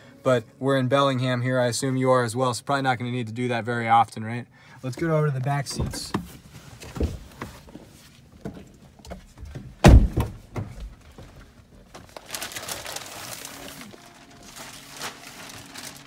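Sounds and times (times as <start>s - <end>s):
rustling: 6.0s - 16.0s
truck door shutting: 9.8s - 10.8s.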